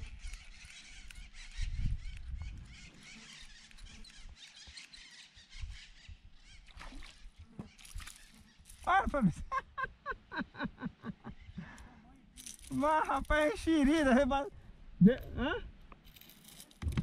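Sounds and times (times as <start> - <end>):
birds chirping: 0.0 - 12.9
microphone thumps: 16.8 - 17.0.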